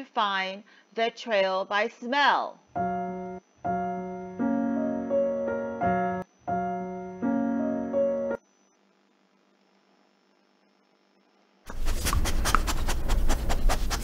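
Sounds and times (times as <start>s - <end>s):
electronic keyboard tune: 2.8s - 8.4s.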